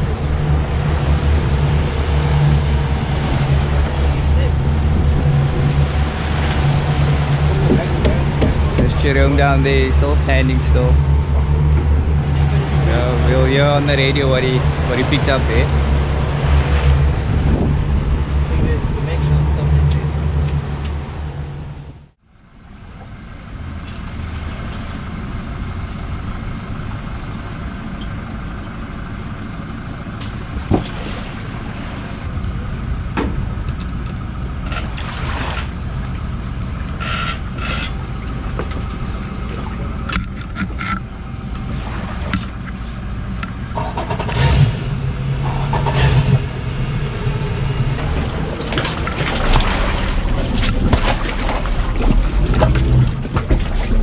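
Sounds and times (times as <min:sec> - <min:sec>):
engine running: 0:00.0 - 0:54.0
knocks and clicks: 0:07.6 - 0:09.0, 0:43.4 - 0:44.8, 0:45.4 - 0:46.5.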